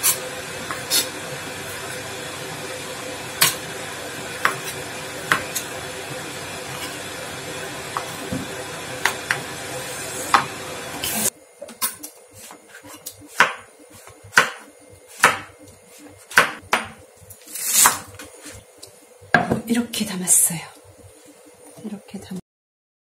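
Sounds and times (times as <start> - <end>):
knife chopping on wooden board: 4.4 - 5.7, 12.4 - 15.6, 16.3 - 17.0.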